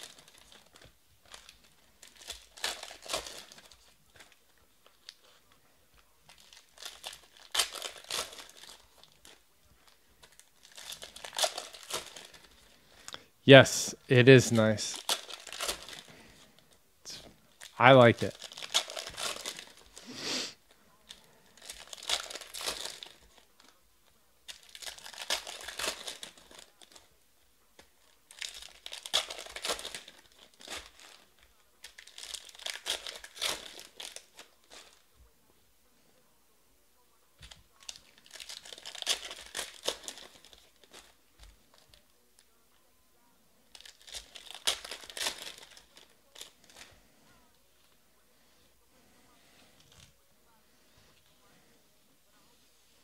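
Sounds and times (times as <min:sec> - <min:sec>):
foil wrappers tearing and crinkling: 0:00.0 - 0:05.4, 0:06.3 - 0:13.0, 0:14.5 - 0:16.4, 0:17.5 - 0:20.0, 0:21.1 - 0:23.8, 0:24.5 - 0:27.1, 0:27.8 - 0:35.1, 0:37.4 - 0:42.0, 0:43.7 - 0:47.1.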